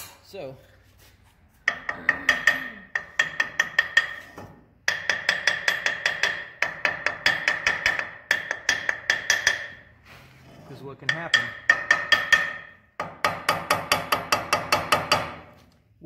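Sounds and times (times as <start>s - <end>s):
hammer tapping on steel: 1.6s - 9.8s, 11.0s - 15.4s.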